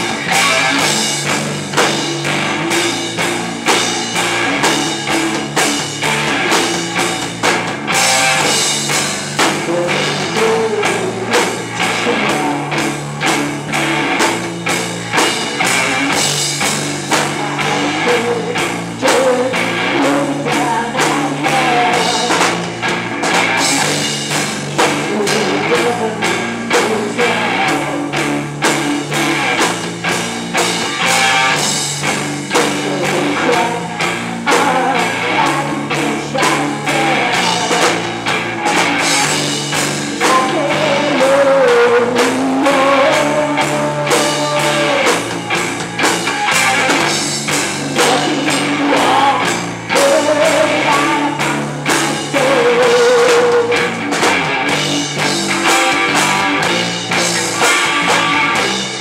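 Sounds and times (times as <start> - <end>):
drum kit beat: 0.0 - 59.0
electric guitar: 0.0 - 59.0
person singing: 9.4 - 13.3, 17.1 - 22.7, 24.8 - 28.4, 32.5 - 38.1, 40.1 - 45.4, 47.7 - 54.2.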